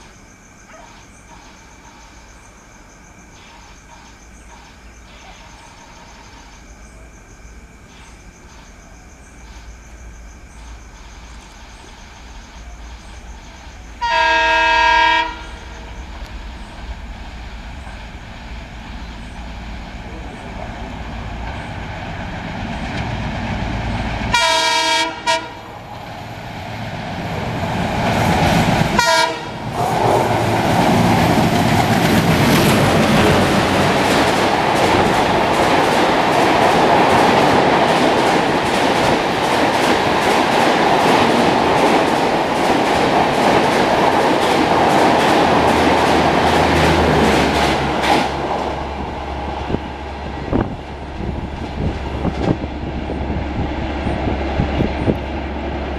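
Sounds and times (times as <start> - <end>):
train rushing past: 9.5 - 55.9
locomotive horn blasts: 14.0 - 15.7, 24.3 - 25.7, 29.0 - 29.6
train wheels clickety-clack: 27.2 - 49.2.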